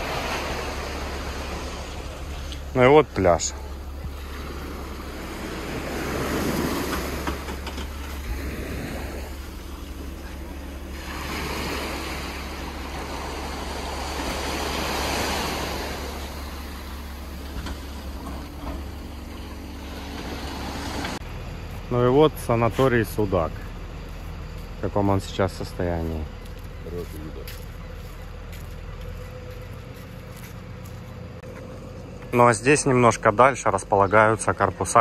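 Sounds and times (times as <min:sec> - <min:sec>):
small waves breaking on sand: 0:00.0 - 0:21.2
low wind rumble on microphone: 0:03.8 - 0:21.7.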